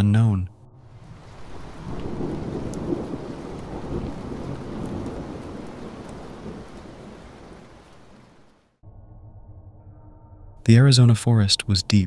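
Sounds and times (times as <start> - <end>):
rolling thunder: 0.6 - 8.5
steady rain: 0.8 - 8.8.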